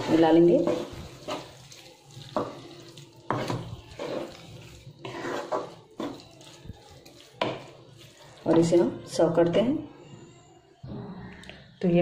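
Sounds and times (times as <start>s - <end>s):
spatula scraping a pan: 0.0s - 9.0s.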